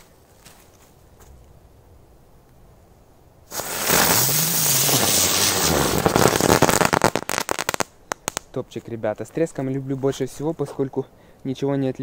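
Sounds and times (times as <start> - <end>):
firecracker crackling and popping: 3.5 - 8.8.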